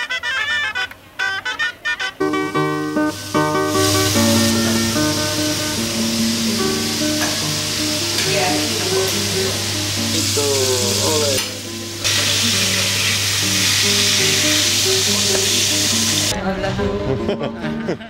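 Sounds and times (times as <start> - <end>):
melody of pitched notes: 0.0 - 12.1
vegetables sizzling in a pan: 3.1 - 16.3.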